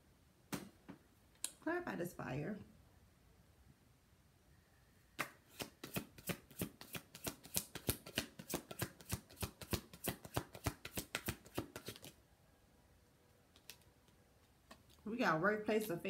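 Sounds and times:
cards being shuffled: 5.2 - 12.2, 13.5 - 15.0.

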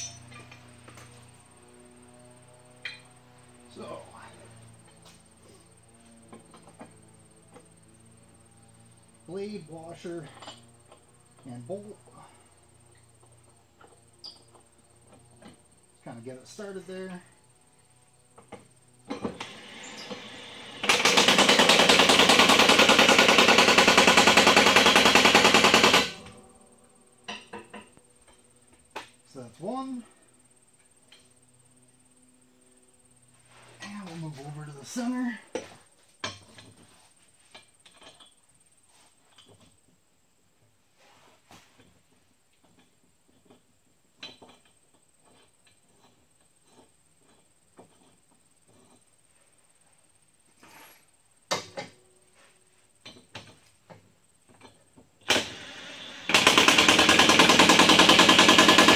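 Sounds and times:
metal hardware clinking: 0.0 - 0.8
impact wrench rattling: 56.3 - 58.9.

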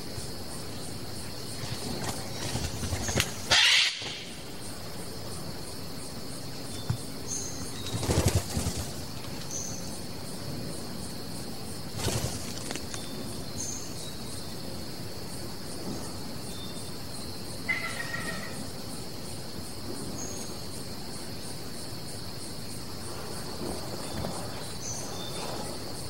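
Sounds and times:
high insect drone: 0.0 - 26.0
bird wings whirring: 1.5 - 4.3, 7.6 - 9.7, 11.9 - 13.2.

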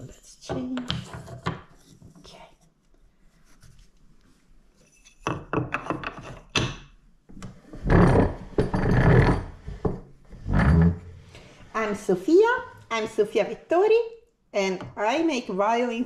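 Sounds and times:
wood scraping and thumping: 7.5 - 11.1.

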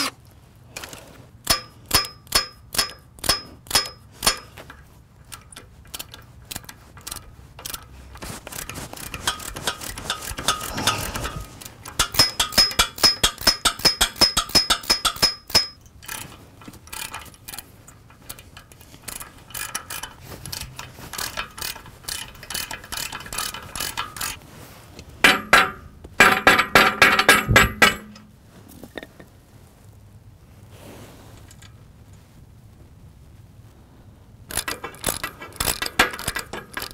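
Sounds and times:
tap wrench clicking: 0.8 - 7.9, 8.5 - 16.2.

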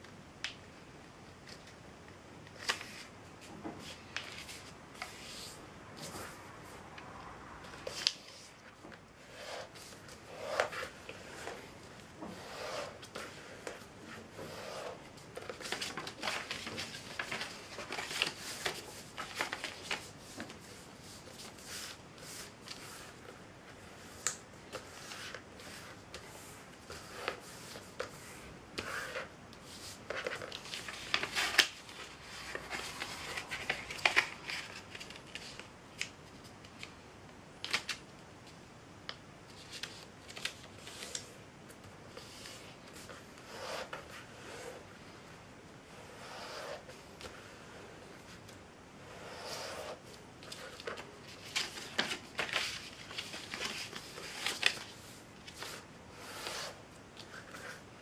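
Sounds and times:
paper rustling and sliding: 7.7 - 35.7, 49.1 - 57.8
paper crackling as folded: 15.4 - 22.8, 29.8 - 37.0, 39.5 - 41.3, 50.4 - 55.8.

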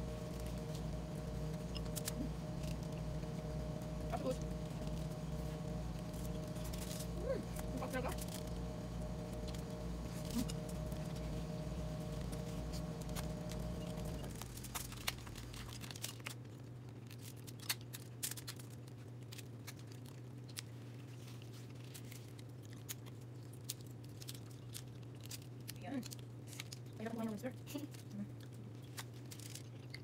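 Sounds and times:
steady hum: 0.0 - 16.1
seafood shells cracking: 14.5 - 20.8.

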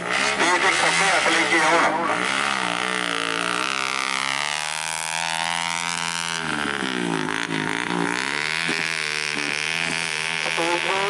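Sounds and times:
motorcycle engine revving: 0.0 - 11.0
rear wheel spinning in dirt: 1.6 - 11.0.

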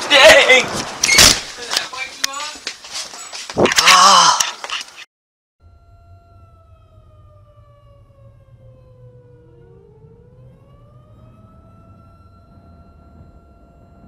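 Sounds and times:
warning siren: 5.6 - 14.0.

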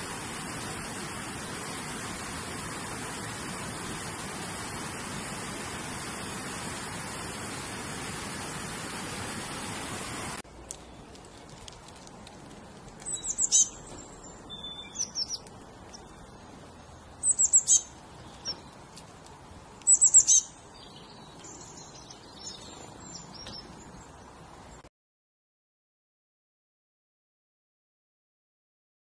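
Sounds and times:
small songbird chirping: 13.0 - 18.9, 19.8 - 24.8.

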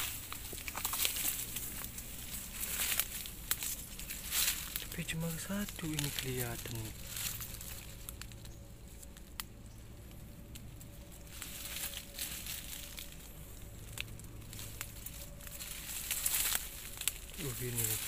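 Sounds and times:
dry leaves rustling and crackling: 0.0 - 18.0
faint steady tone: 0.0 - 18.0.

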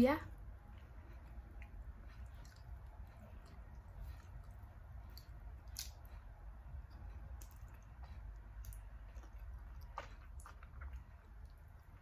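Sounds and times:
low steady hum: 0.0 - 12.0
wet mouth clicks and lip smacks: 3.4 - 6.2.

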